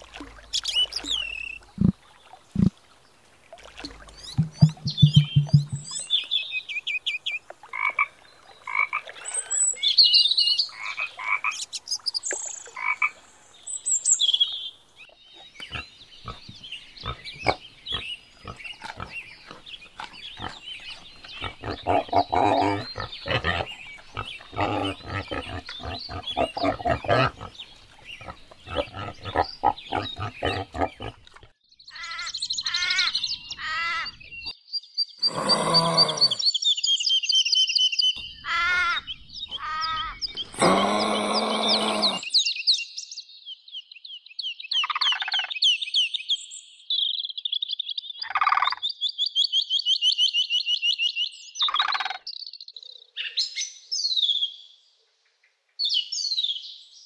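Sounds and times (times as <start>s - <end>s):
high-pitched chirps: 4.2s - 6.0s
frog croaking: 4.4s - 6.0s, 21.4s - 27.6s
wild boar grunting: 15.6s - 31.5s, 35.2s - 36.4s, 38.6s - 42.2s.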